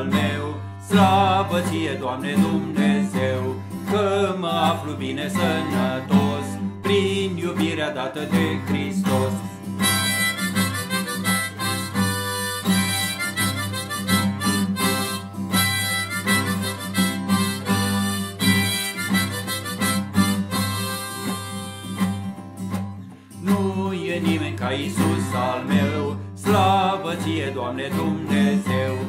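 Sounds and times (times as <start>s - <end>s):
strummed acoustic guitar: 0.0s - 29.0s
harmonica melody: 9.6s - 22.7s.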